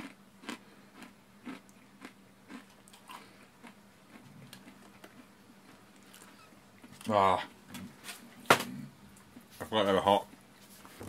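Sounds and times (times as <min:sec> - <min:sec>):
person chewing crunchy snack: 0:00.0 - 0:07.1.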